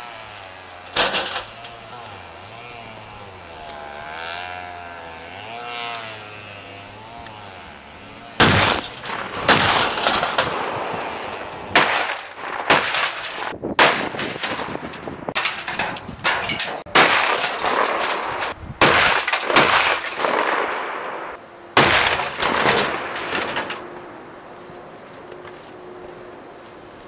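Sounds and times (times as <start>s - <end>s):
gunshots with long echo: 8.4s - 14.5s, 16.9s - 23.2s.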